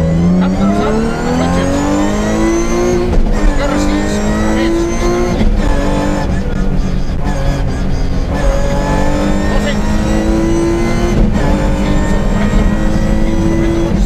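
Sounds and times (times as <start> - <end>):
car engine accelerating hard: 0.0 - 14.0.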